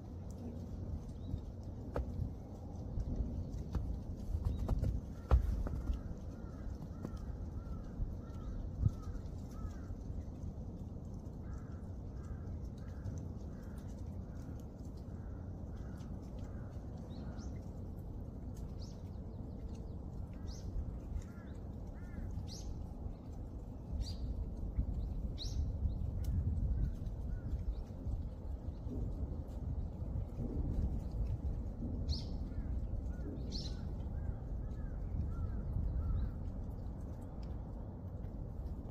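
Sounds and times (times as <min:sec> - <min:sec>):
low steady rumble: 0:00.0 - 0:38.9
birds calling: 0:03.4 - 0:10.5, 0:32.1 - 0:36.9.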